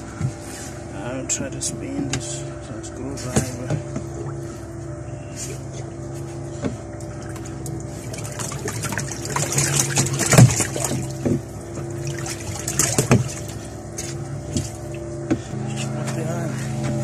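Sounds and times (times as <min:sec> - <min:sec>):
washing machine hum: 0:00.0 - 0:17.0
water splashing and trickling: 0:06.2 - 0:16.8.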